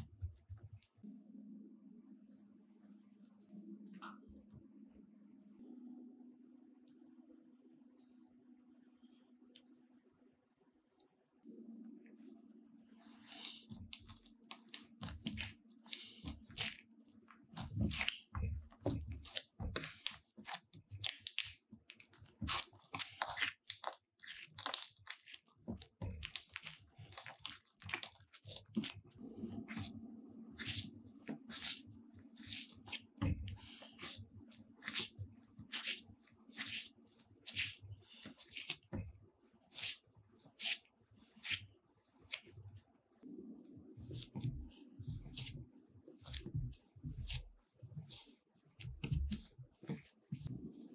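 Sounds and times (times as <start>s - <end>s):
dough squishing and tearing: 13.1s - 50.9s.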